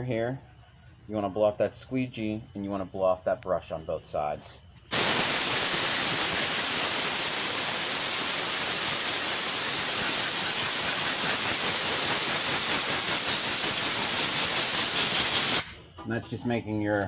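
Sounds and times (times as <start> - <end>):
compressed air hissing: 3.7 - 16.8.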